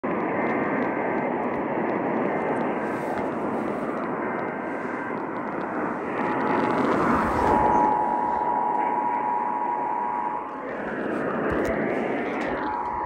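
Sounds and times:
radio static hiss: 0:00.0 - 0:13.0
two-tone data bursts: 0:04.2 - 0:13.0.

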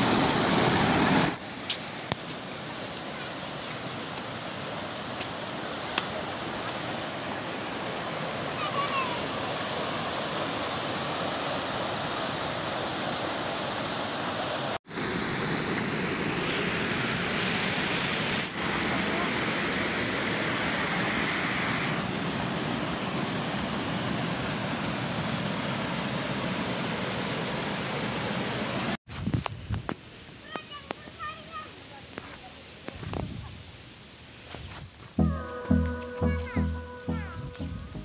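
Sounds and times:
waterfall rushing over rocks: 0:00.0 - 0:29.0.

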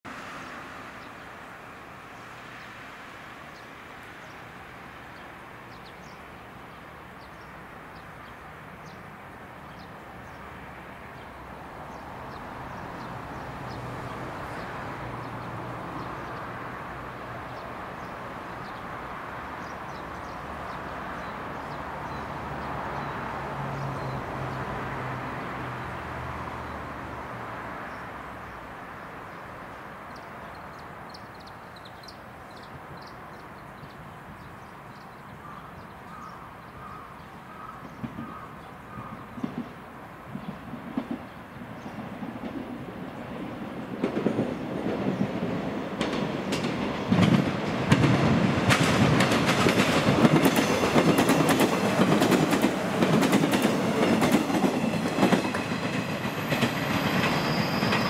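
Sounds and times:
small birds chirping: 0:29.3 - 0:39.8
train wheels rumbling on rail: 0:37.8 - 0:58.0.

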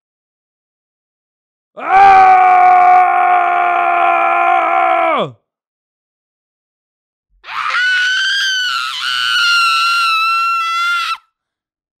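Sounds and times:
high-pitched human scream: 0:01.8 - 0:05.4, 0:07.4 - 0:11.3.

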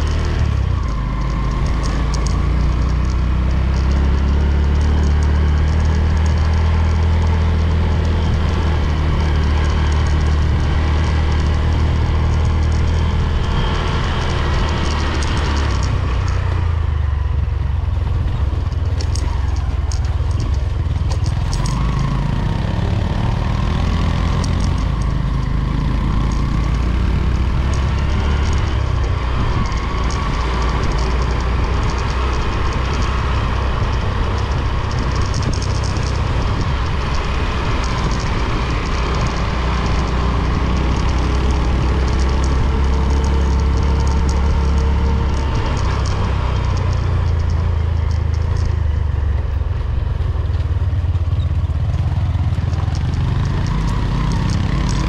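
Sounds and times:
vehicle engine running: 0:00.0 - 0:55.0.

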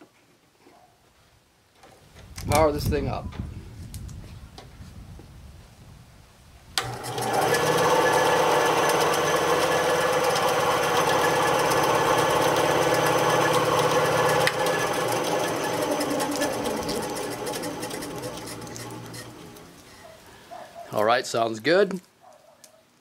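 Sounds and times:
bandsaw motor running: 0:06.8 - 0:19.8.

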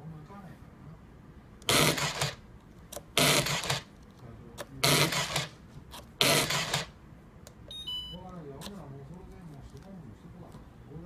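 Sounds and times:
tape dispenser motor running: 0:01.6 - 0:02.4, 0:03.2 - 0:03.9, 0:04.8 - 0:07.0
short electronic beep: 0:07.7 - 0:08.2.

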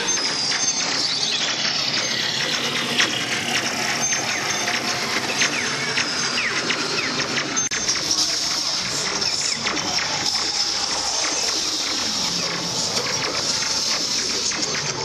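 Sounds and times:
electronic zap effects: 0:00.0 - 0:15.0
ride noise: 0:00.0 - 0:15.0.

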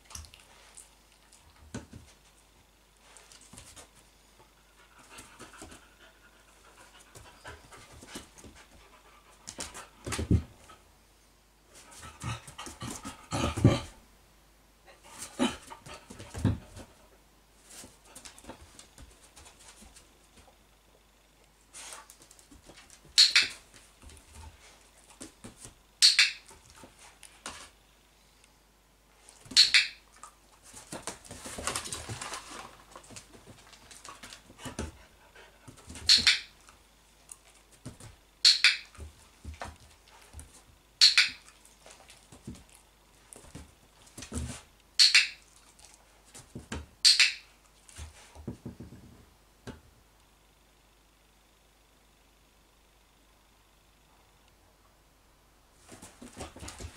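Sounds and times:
dog moving about: 0:30.6 - 0:35.0.

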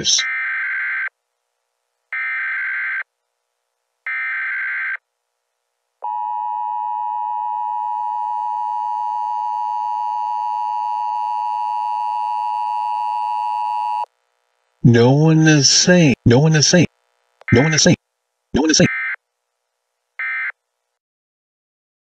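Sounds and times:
loud steady attention tone: 0:06.0 - 0:14.1, 0:14.8 - 0:18.0, 0:18.6 - 0:19.2.

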